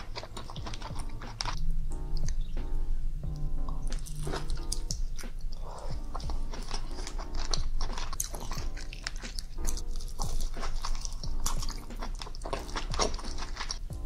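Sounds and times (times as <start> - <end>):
wet chewing and smacking: 0.0 - 2.6, 3.3 - 13.9
background music: 0.0 - 14.0.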